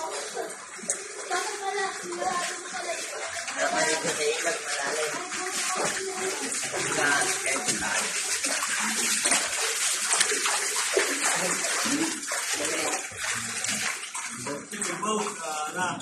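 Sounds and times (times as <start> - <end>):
water sloshing and splashing: 0.0 - 16.0.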